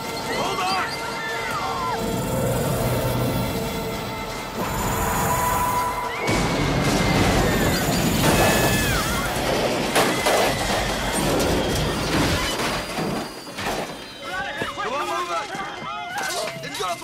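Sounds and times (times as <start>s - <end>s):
background music: 0.0s - 11.8s
metallic squeals: 0.0s - 15.6s
crashing and explosion: 6.2s - 14.1s.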